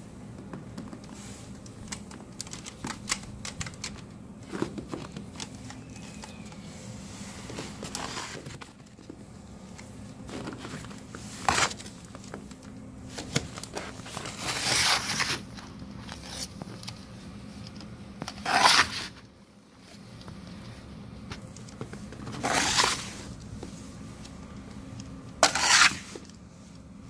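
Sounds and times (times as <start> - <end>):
snow shovel scraping wooden deck: 18.4 - 19.1, 22.4 - 23.4, 25.4 - 26.2.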